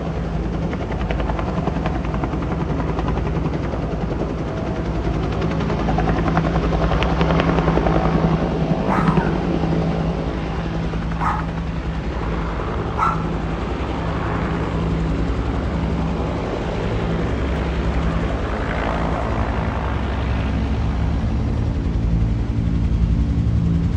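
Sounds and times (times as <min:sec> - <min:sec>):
helicopter rotor beating: 0:00.0 - 0:23.9.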